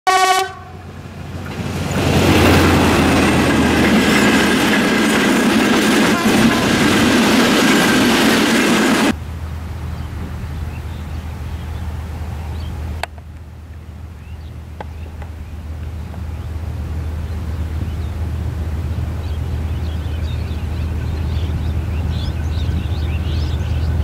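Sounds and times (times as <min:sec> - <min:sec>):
passenger train passing: 0:00.1 - 0:24.0
wheels clattering over rails: 0:01.0 - 0:09.2.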